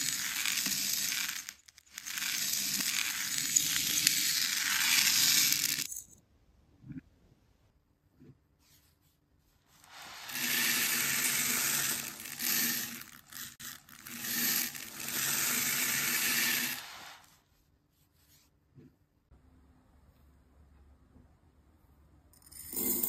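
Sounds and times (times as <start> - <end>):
plastic beads pouring onto a dish: 0.0 - 6.0, 9.8 - 17.3.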